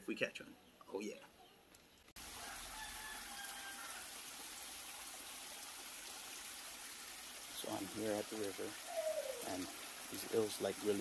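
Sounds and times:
stream running over rocks: 2.2 - 11.0
faint rooster crow: 2.3 - 4.2.

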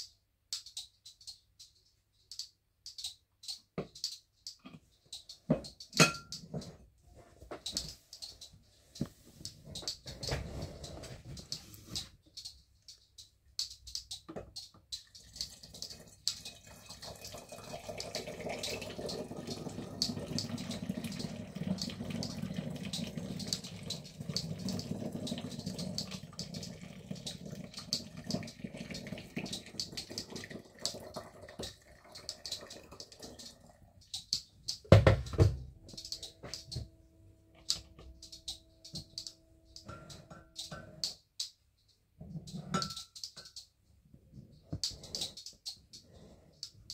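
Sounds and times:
water pouring into a glass bottle: 15.1 - 33.8.

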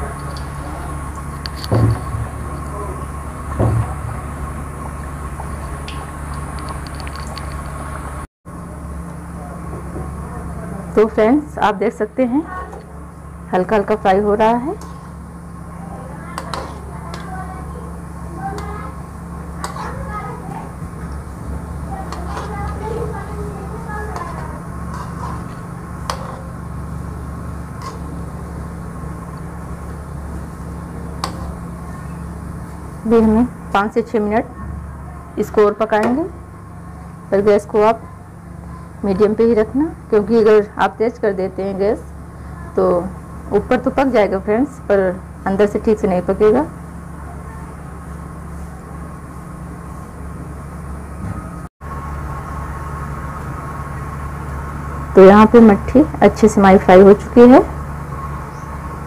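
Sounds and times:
low hum: 0.0 - 59.0
frying in hot oil: 13.8 - 33.0.

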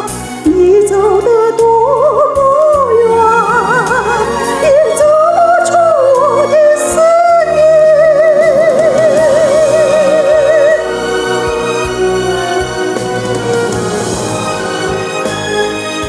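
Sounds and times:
woman singing with vibrato: 0.0 - 11.7.

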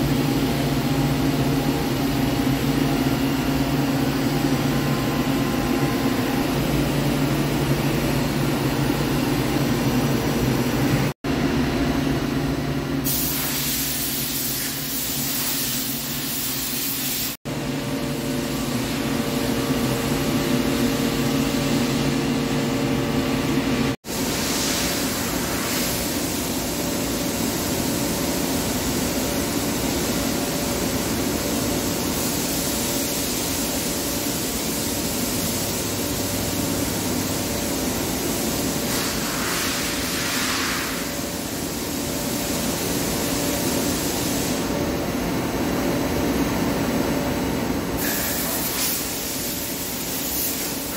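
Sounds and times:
machinery humming: 0.0 - 13.2
hiss: 13.0 - 17.4, 24.0 - 36.6, 38.4 - 44.8, 48.0 - 50.9.

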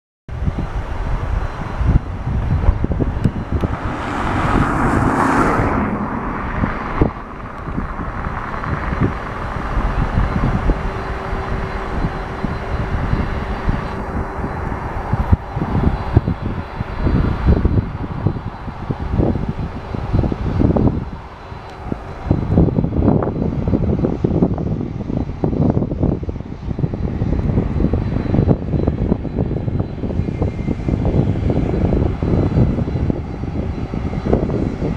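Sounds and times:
jet engines rumbling: 0.3 - 34.9.

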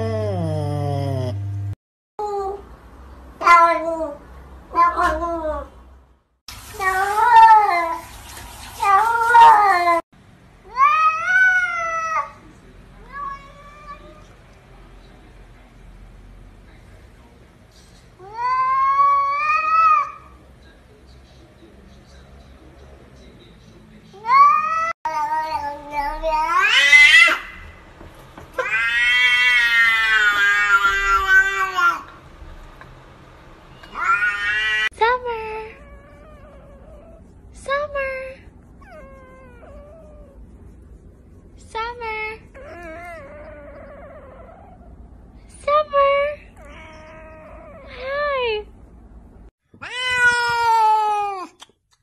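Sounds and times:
cats meowing: 24.2 - 27.6, 28.6 - 32.1, 33.8 - 34.9, 49.8 - 51.5.

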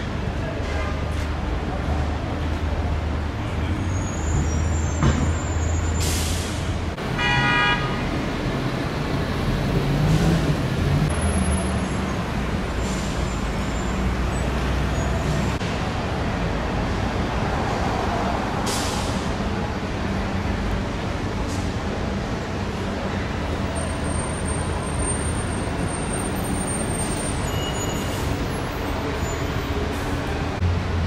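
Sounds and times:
heavy vehicle engines running: 0.0 - 31.0
air brake hiss: 6.0 - 6.7, 18.6 - 19.3
vehicle horn toot: 7.1 - 8.1.

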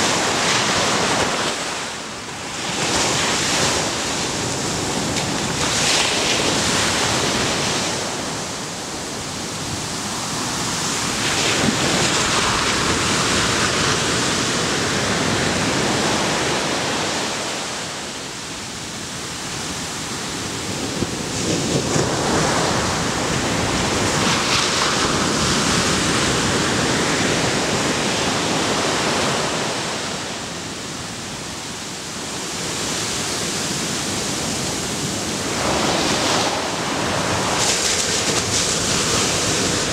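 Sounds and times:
ocean surf breaking on beach: 0.0 - 39.9.

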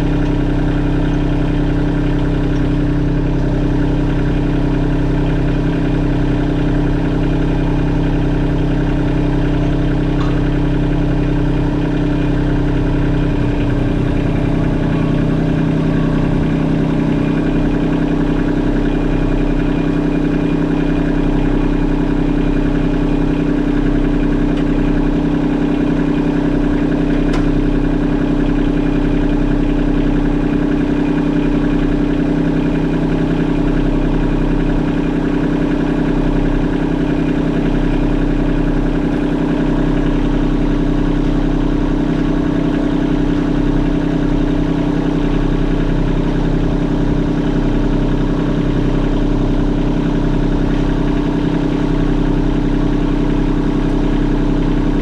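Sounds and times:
tractor diesel engine idling: 0.0 - 55.0.

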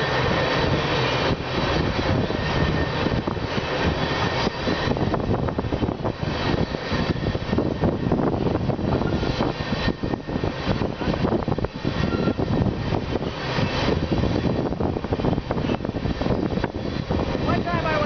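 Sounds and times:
train wheels rumbling on rail: 0.0 - 18.0.

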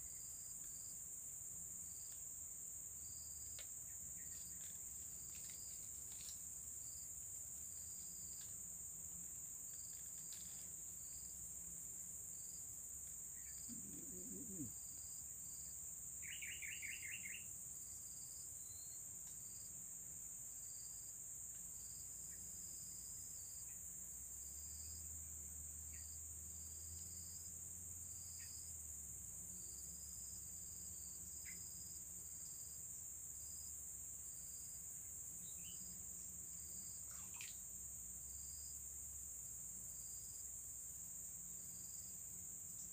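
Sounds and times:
cricket drone: 0.0 - 42.9
short insect chirp: 0.0 - 42.9
bird trill: 16.2 - 17.4.

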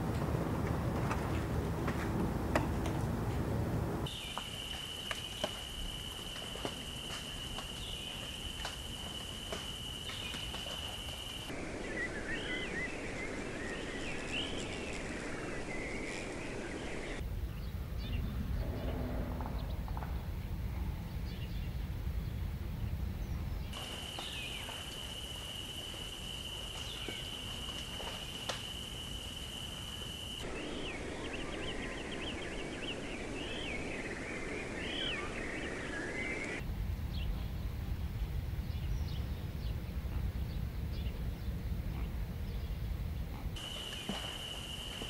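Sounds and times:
low rumbling noise: 0.0 - 4.2, 10.9 - 28.2
birds chirping: 0.0 - 20.0, 23.2 - 36.6, 40.5 - 45.0.

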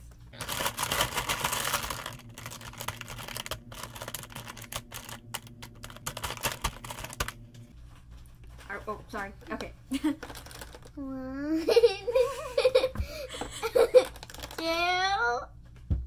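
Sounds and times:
plastic markers clattering: 0.5 - 7.3, 10.2 - 10.9, 13.9 - 14.8.

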